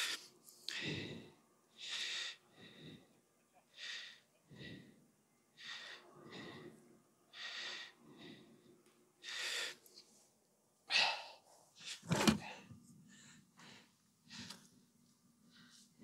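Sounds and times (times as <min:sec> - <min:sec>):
person breathing: 0:00.0 - 0:10.2, 0:10.9 - 0:14.8, 0:15.4 - 0:16.0.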